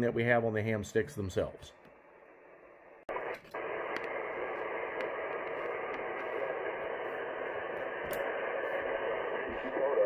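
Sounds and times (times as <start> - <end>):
radio static hiss: 3.0 - 10.0.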